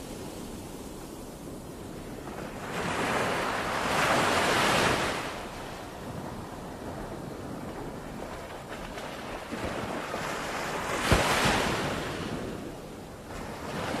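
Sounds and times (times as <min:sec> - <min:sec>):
ocean waves breaking on beach: 0:00.0 - 0:14.0.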